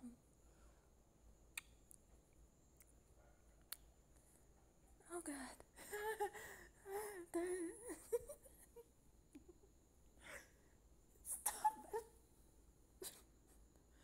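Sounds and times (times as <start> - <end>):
soft breaths: 0.0 - 1.1, 3.2 - 7.8.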